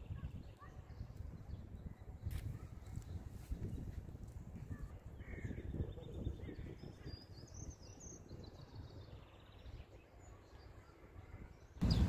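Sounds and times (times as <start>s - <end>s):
distant birds chirping: 5.1s - 12.0s
bird trill: 10.2s - 12.0s
low rumble on microphone: 11.8s - 12.0s.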